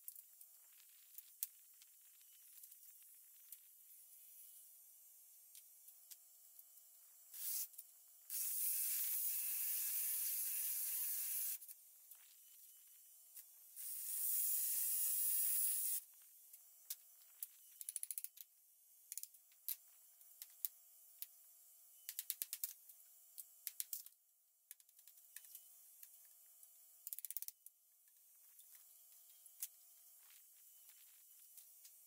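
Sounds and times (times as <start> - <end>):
power tool cutting wood: 8.3 - 11.6, 13.8 - 16.0.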